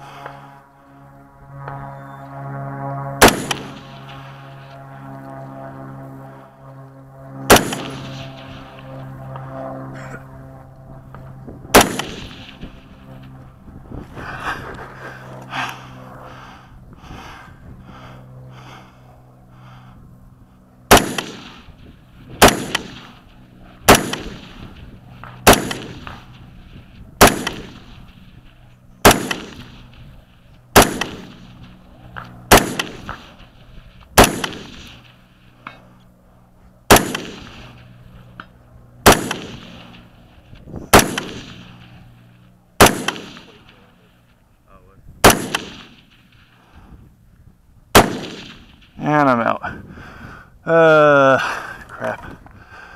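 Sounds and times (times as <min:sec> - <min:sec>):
rifle shots with echo: 0:03.2 - 0:04.1, 0:07.5 - 0:08.8, 0:11.7 - 0:12.8, 0:20.9 - 0:21.7, 0:22.4 - 0:26.5, 0:27.2 - 0:28.2, 0:29.0 - 0:30.0, 0:30.7 - 0:33.5, 0:34.1 - 0:35.2, 0:36.9 - 0:37.9, 0:39.0 - 0:40.1, 0:40.9 - 0:42.1, 0:42.8 - 0:44.1, 0:45.2 - 0:46.6, 0:47.9 - 0:49.0.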